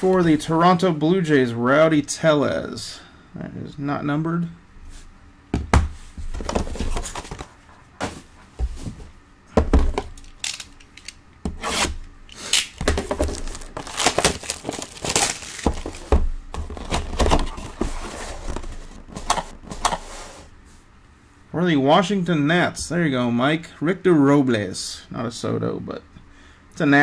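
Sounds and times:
cardboard box and cards rustling: 0:06.2 - 0:09.1, 0:12.8 - 0:20.3.

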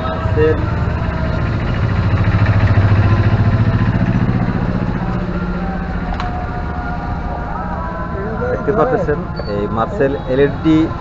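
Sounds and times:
small vehicle engine running: 0:00.0 - 0:07.2.

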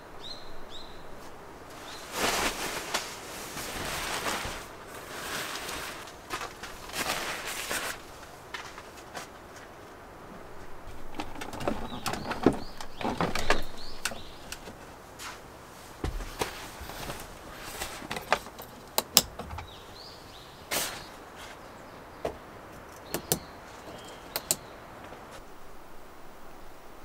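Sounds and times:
birds chirping faintly: 0:00.0 - 0:27.0
sleeping bag rustling: 0:00.7 - 0:19.0, 0:19.6 - 0:21.8
sharp clicks and knocks: 0:16.0 - 0:19.8, 0:22.2 - 0:24.6.

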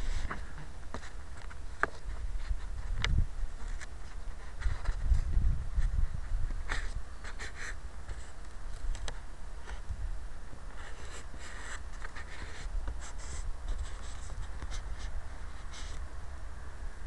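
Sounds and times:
wind buffeting microphone: 0:02.0 - 0:07.5
scratchy rustling: 0:03.6 - 0:09.0, 0:10.7 - 0:16.0.

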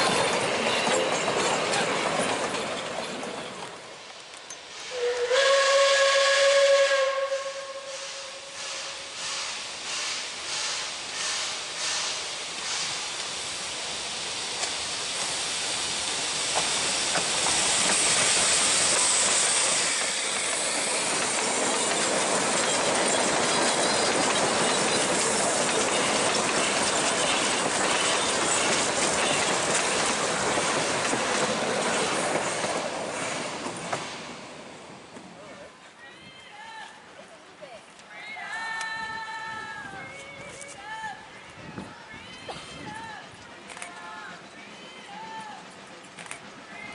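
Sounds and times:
steam hiss: 0:03.8 - 0:35.1
steam locomotive chuffing: 0:04.6 - 0:34.7.

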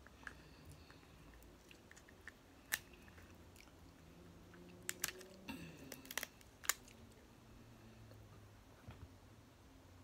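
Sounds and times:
crab shells cracking: 0:01.4 - 0:03.7, 0:04.8 - 0:07.2.

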